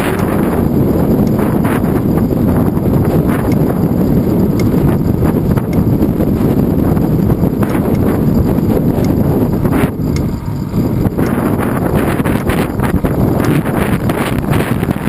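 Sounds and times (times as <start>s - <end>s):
wind buffeting microphone: 0.0s - 15.0s
light clicks: 4.5s - 4.8s.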